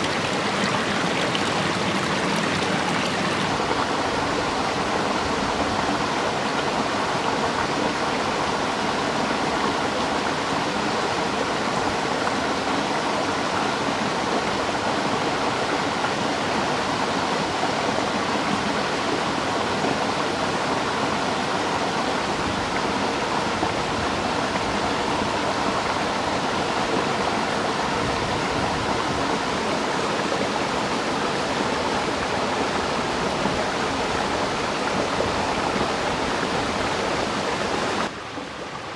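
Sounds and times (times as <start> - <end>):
thin stream of water pouring: 0.0 - 4.0.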